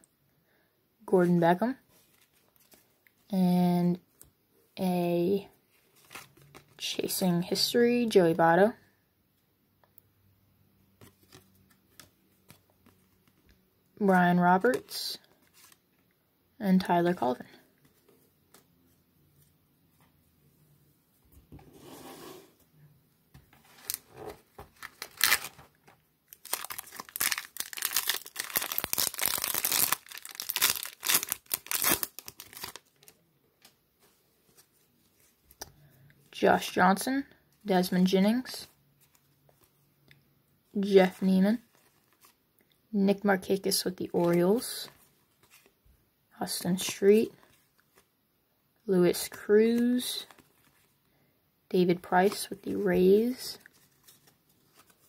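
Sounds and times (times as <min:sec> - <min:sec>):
foil wrapper tearing and crinkling: 0:24.7 - 0:25.6, 0:26.3 - 0:33.1
foil rustling: 0:26.4 - 0:33.1.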